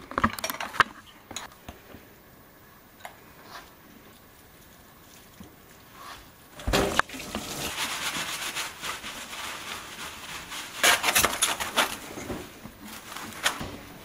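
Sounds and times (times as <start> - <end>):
meat rubbing in metal tray: 5.9 - 13.7.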